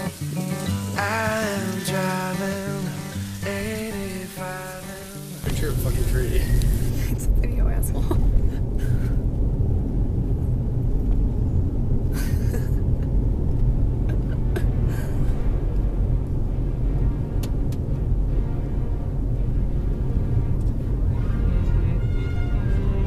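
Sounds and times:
road rumble inside car: 5.4s - 23.0s.

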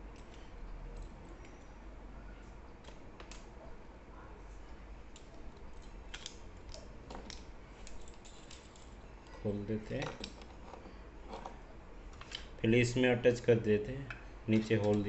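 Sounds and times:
small metal parts clicking: 0.1s - 1.6s, 2.8s - 3.5s, 5.1s - 12.5s, 14.0s - 15.0s.

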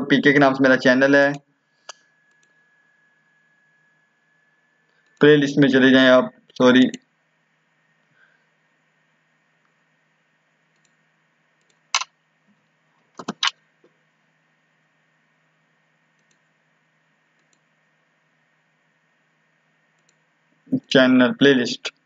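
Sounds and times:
faint steady hum: 0.0s - 22.0s
computer mouse clicks: 10.7s - 11.0s, 11.6s - 12.1s, 13.2s - 13.6s, 16.2s - 16.5s, 17.4s - 17.7s, 20.0s - 20.3s.

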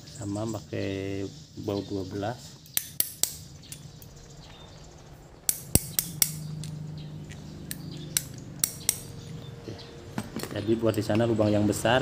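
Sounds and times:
low steady hum: 2.6s - 12.0s
metal tools clinking: 5.5s - 9.5s.

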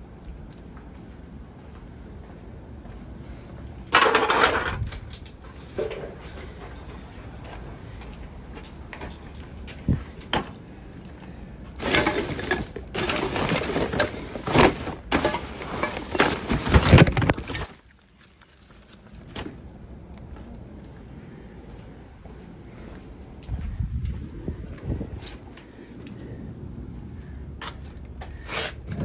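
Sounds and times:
plastic bags crinkling and rustling: 11.8s - 19.8s.

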